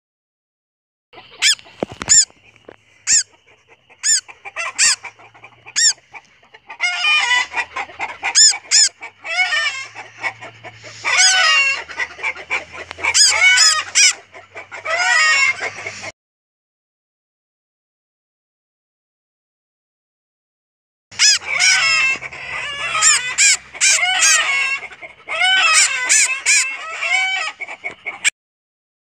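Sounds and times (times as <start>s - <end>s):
bird squawking harshly: 1.2s - 2.4s, 3.0s - 16.1s, 21.1s - 28.3s
bird chipping: 1.2s - 16.0s, 21.2s - 28.3s.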